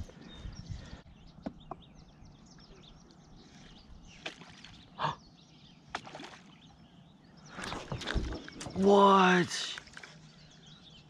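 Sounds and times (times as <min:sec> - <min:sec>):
faint bird chirps: 0:00.0 - 0:11.0
kayak paddle splashing: 0:04.1 - 0:04.9, 0:05.9 - 0:06.7.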